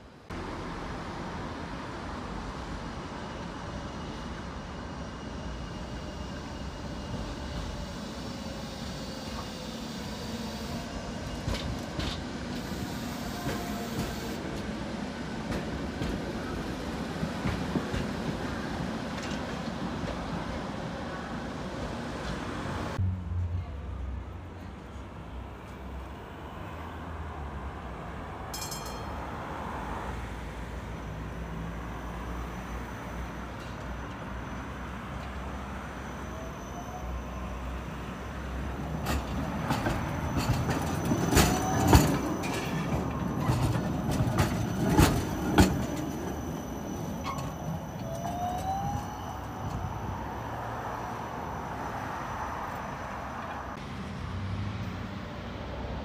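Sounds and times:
tram rumbling: 0:00.0 - 0:56.0
tram wheels clacking over rail joints: 0:10.3 - 0:14.8, 0:15.4 - 0:20.6, 0:38.5 - 0:49.9.

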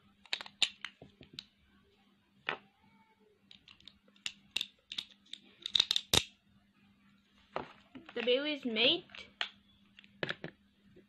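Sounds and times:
plastic top parts clicking together: 0:00.2 - 0:01.5, 0:03.5 - 0:06.3.

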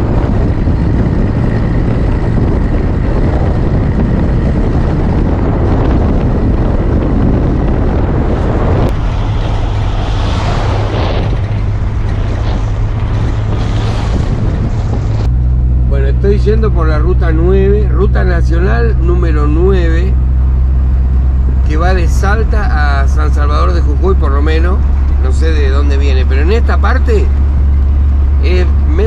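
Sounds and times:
engine and tyre drone: 0:00.0 - 0:29.0
wind rushing over microphone: 0:00.0 - 0:29.0.

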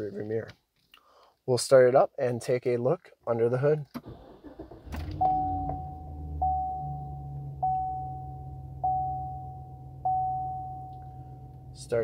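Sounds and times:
warning chime: 0:05.2 - 0:11.8.

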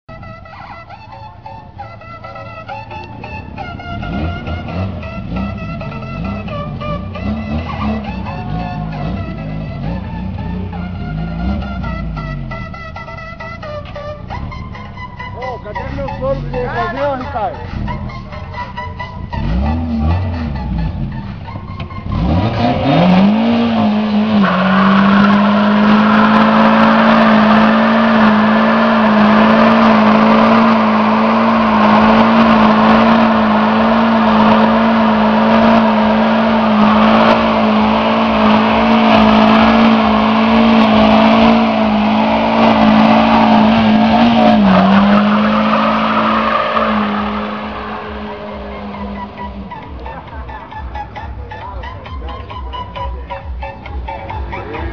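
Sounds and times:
car engine revving: 0:00.1 - 0:54.9
tyres squealing on asphalt: 0:00.1 - 0:54.9.

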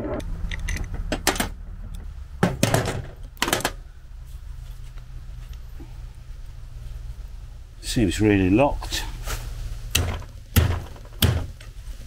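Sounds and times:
hardware knocks and clanks: 0:00.0 - 0:03.8, 0:09.9 - 0:11.7
low steady rumble: 0:00.0 - 0:12.0.

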